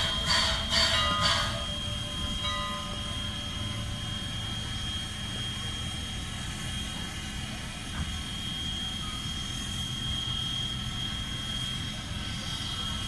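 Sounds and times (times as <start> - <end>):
locomotive bell ringing: 0.0 - 13.0
locomotive rumbling: 0.0 - 13.0.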